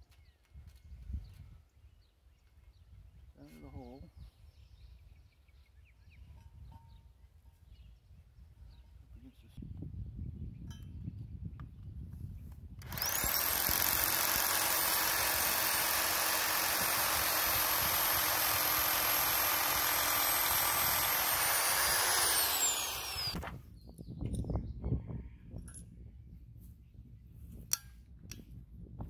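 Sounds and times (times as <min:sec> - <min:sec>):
hammer drill boring into concrete: 0:12.8 - 0:23.4.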